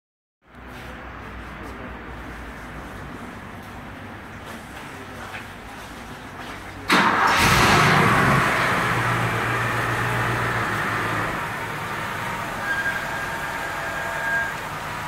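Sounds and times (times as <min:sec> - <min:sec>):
car engine idling: 0:07.0 - 0:15.0.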